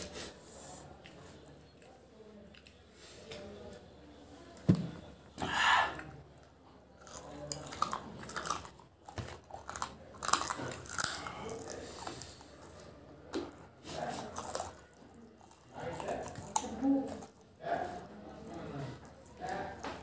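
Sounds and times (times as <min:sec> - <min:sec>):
chewing and biting food: 0:07.0 - 0:12.8, 0:14.0 - 0:20.0.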